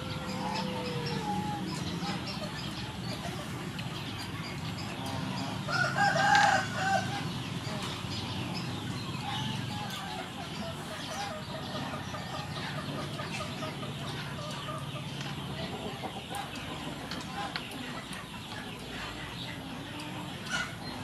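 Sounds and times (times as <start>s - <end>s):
chicken clucking: 0.0s - 21.0s
rooster crowing: 5.7s - 7.1s.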